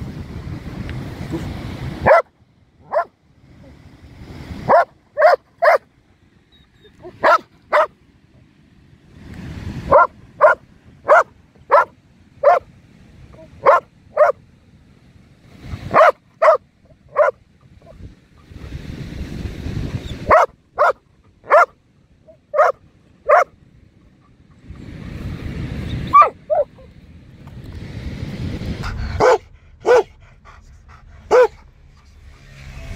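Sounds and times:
dog barking: 2.0s - 3.1s, 4.7s - 5.9s, 7.0s - 7.9s, 9.9s - 12.7s, 13.4s - 14.4s, 15.9s - 17.4s, 20.2s - 23.5s, 26.1s - 26.9s, 29.2s - 30.1s, 31.3s - 31.6s
rushing noise: 26.6s - 32.9s.

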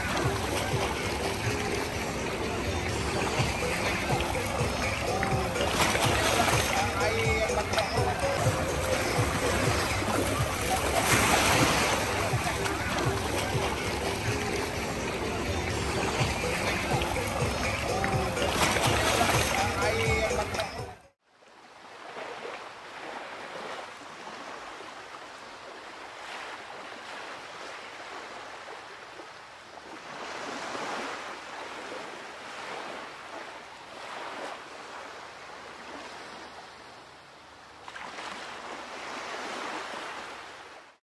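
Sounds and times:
surf washing onto beach: 0.0s - 20.8s.

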